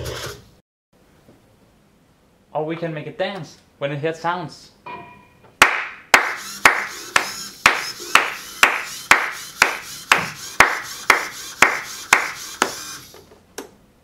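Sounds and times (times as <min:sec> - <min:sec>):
hands clapping: 0:05.6 - 0:12.4.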